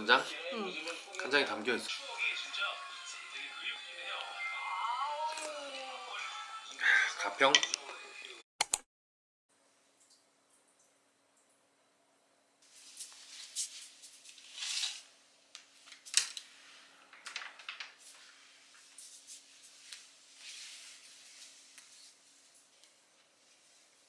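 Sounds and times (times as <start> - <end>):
sharp click: 8.6 - 8.8
fabric rustling: 18.0 - 24.0.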